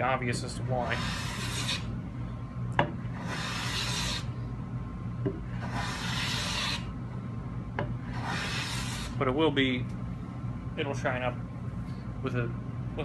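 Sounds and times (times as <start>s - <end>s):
hand plane slicing wood: 3.2s - 4.2s, 5.6s - 6.8s, 8.2s - 9.1s.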